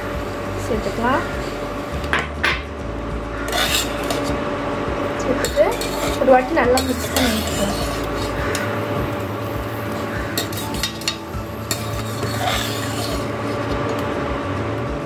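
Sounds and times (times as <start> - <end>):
spatula stirring rice in pan: 3.4 - 4.4, 5.3 - 14.0
spatula clinking on pan: 10.4 - 13.2.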